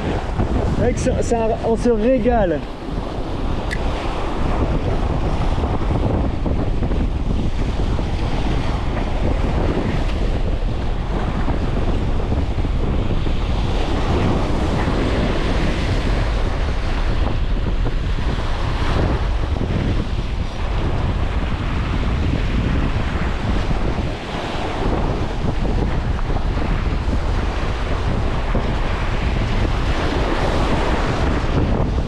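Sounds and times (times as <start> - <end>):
sea waves breaking: 0.0 - 32.0
wind buffeting microphone: 0.0 - 32.0.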